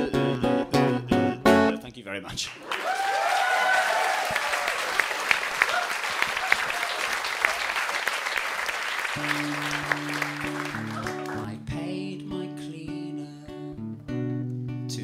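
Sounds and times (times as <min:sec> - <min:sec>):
audience applauding: 0:02.6 - 0:11.6
music with held notes: 0:09.2 - 0:15.0.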